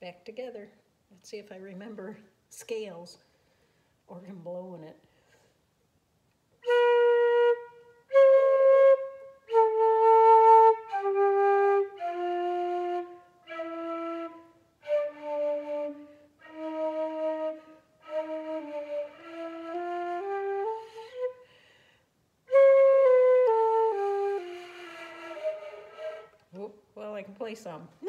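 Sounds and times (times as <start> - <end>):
flute held notes: 6.6 - 21.5, 22.5 - 26.6.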